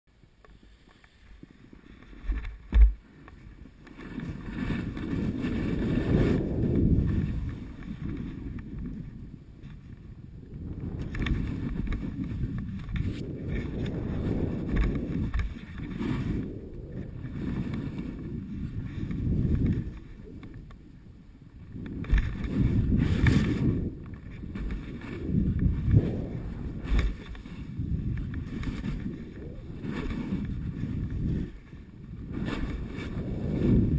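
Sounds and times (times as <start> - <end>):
wind rumbling on microphone: 0.1 - 33.9
skis sliding over snow: 0.4 - 33.9.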